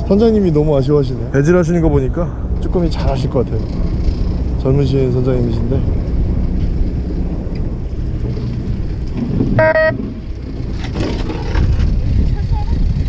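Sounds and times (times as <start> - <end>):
boat engine running: 0.0 - 13.0
wind on microphone: 0.0 - 13.0
boat horn blast: 9.5 - 10.2.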